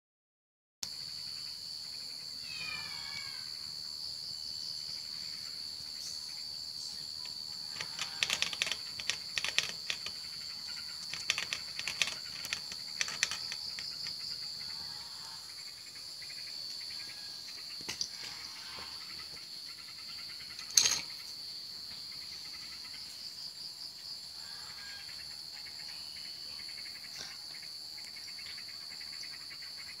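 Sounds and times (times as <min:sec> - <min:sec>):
clicks and rattles in wire cage: 0:07.2 - 0:14.2.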